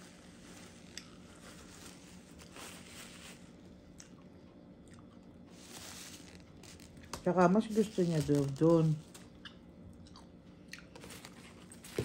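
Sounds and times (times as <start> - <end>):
paper wrapper rustling: 0.0 - 3.7, 5.5 - 9.3, 11.0 - 12.0
soft chewing: 0.1 - 2.8, 3.4 - 7.2, 9.0 - 12.0.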